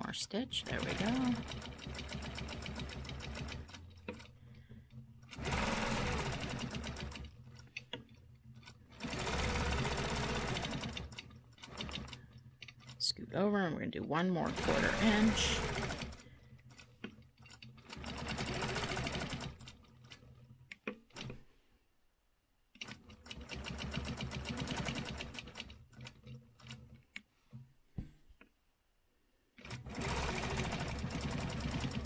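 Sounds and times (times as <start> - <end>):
quilting machine needle strokes: 0.0 - 13.1, 14.4 - 21.4, 29.6 - 32.0.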